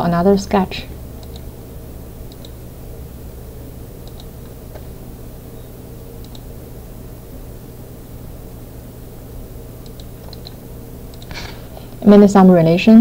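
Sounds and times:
low hum and hiss: 0:00.0 - 0:13.0
computer mouse clicks: 0:01.2 - 0:01.5, 0:02.3 - 0:02.6, 0:04.0 - 0:05.0, 0:06.2 - 0:06.5, 0:09.8 - 0:11.5.

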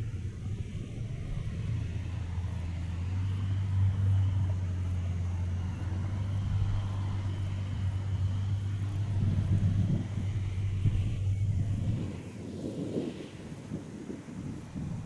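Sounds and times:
propeller engine droning: 0:00.0 - 0:15.0.

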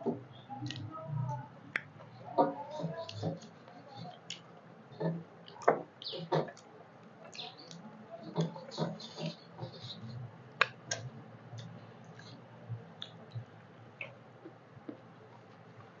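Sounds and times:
fingers scraping metal plates: 0:08.2 - 0:10.2.

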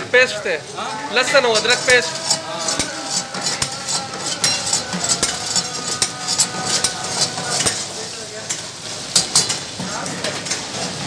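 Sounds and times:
meat sizzling in hot oil: 0:00.0 - 0:11.0
metal ladle scraping pan: 0:01.1 - 0:09.8.

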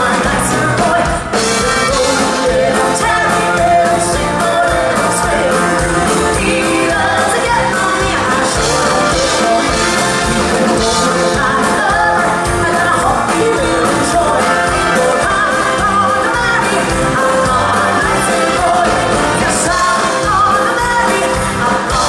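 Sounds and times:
country band playing: 0:00.0 - 0:22.0
woman singing: 0:00.0 - 0:22.0.

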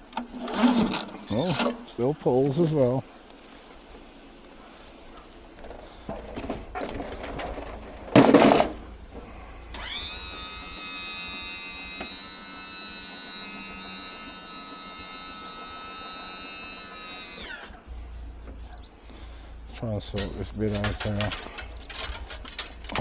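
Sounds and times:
motor whining: 0:09.6 - 0:17.9.

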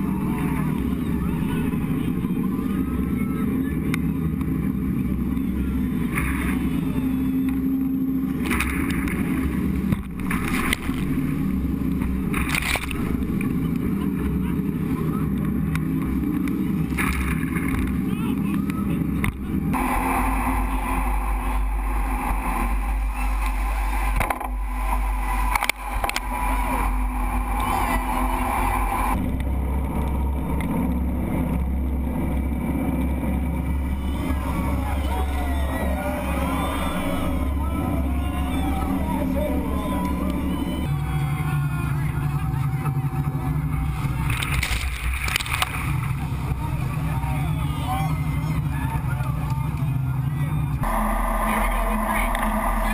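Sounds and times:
rushing water: 0:00.0 - 0:49.3
boat engine rumble: 0:00.0 - 0:52.9
rush of whitewater and spray: 0:19.7 - 0:29.1.

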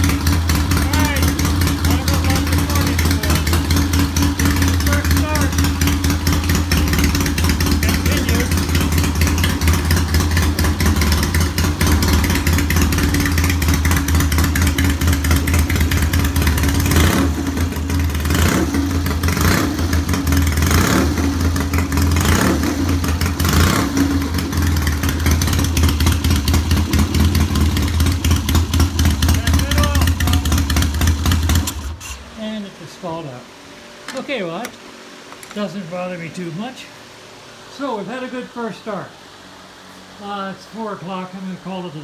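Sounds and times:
motorcycle engine running: 0:00.0 - 0:32.2.

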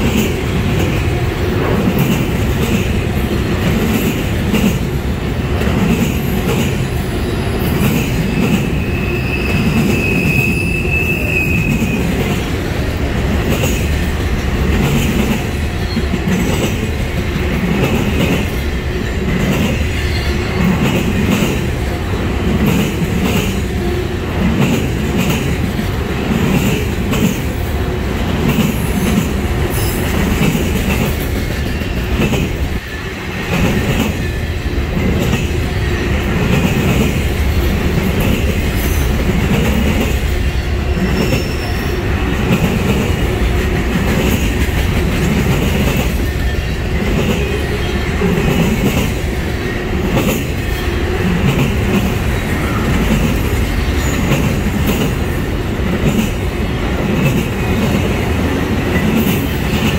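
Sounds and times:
steel wheels rumbling on rail: 0:00.0 - 0:59.9.

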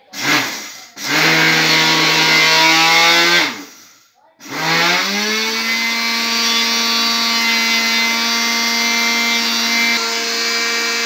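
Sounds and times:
blender grinding seeds: 0:00.0 - 0:03.8, 0:04.4 - 0:11.0.

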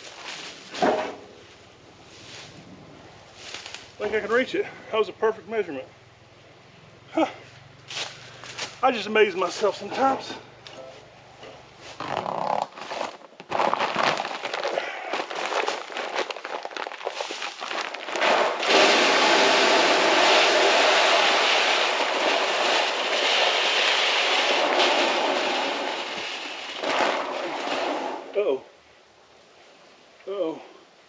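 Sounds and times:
grain pouring into hopper: 0:15.3 - 0:28.4.

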